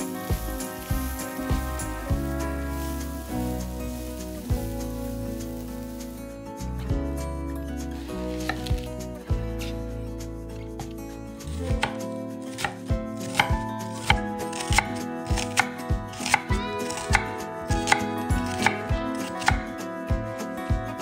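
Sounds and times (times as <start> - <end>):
knife chopping on cutting board: 11.7 - 12.0.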